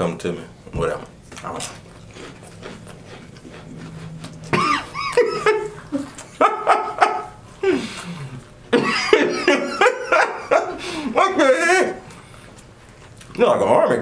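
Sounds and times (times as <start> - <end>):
men laughing: 4.4 - 12.1.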